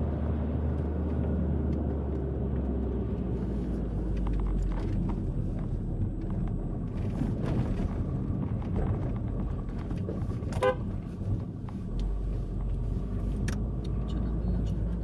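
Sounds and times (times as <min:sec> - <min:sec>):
car engine and road noise: 0:00.0 - 0:15.0
car horn toot: 0:10.6 - 0:10.9.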